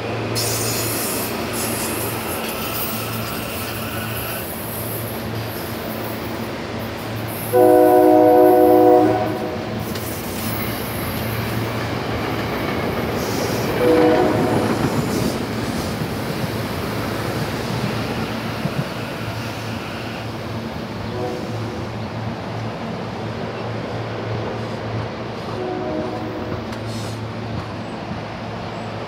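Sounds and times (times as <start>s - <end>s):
train rumbling past: 0.0s - 29.0s
train horn: 7.5s - 9.8s, 13.8s - 14.8s, 19.1s - 20.3s, 21.1s - 21.9s, 25.5s - 26.8s.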